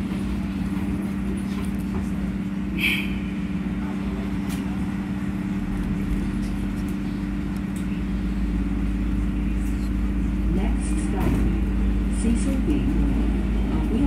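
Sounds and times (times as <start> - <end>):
subway car equipment hum: 0.0 - 14.0
train rumbling: 0.0 - 14.0.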